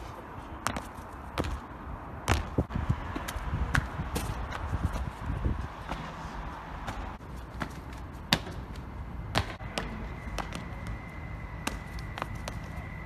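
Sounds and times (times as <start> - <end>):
shoes knocking on stone paving: 0.6 - 1.6, 2.3 - 6.2, 6.8 - 11.0.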